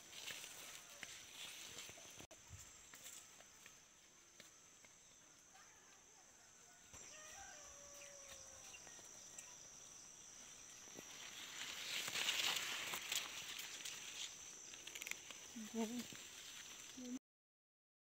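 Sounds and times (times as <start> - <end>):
footsteps rustling through plants: 0.0 - 4.6, 10.4 - 17.2
high-pitched insect drone: 0.1 - 17.2.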